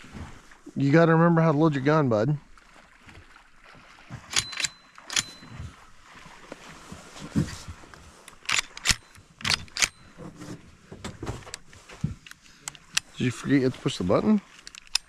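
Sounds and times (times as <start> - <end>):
shotgun action metallic clicks: 4.3 - 5.4, 8.3 - 10.0, 14.5 - 15.0.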